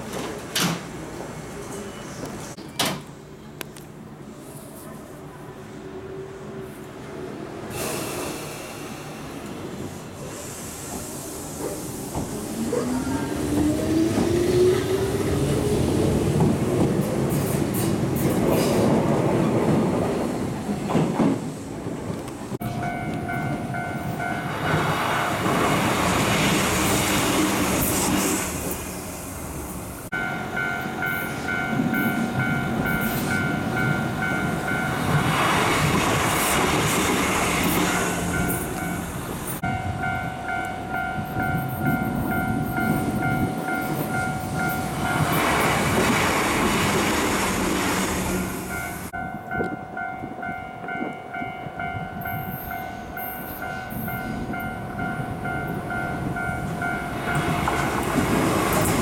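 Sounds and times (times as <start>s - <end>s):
trains rumbling past: 0.0s - 59.0s
train wheels clattering on rails: 15.6s - 28.8s, 53.6s - 59.0s
level crossing warning bells: 22.6s - 25.6s, 30.1s - 35.4s, 37.8s - 46.0s, 48.6s - 59.0s.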